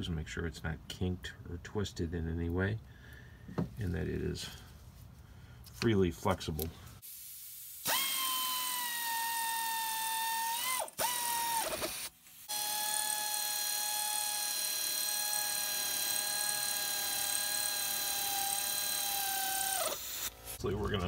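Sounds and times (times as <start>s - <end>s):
power tool motor whining: 7.9s - 20.6s.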